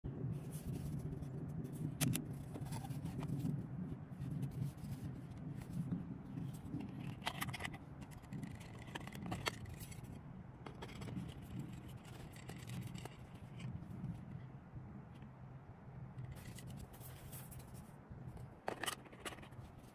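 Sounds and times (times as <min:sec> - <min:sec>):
steady low rumble: 0:00.0 - 0:19.9
wooden box clicks and scrapes: 0:06.5 - 0:13.8, 0:18.6 - 0:19.7.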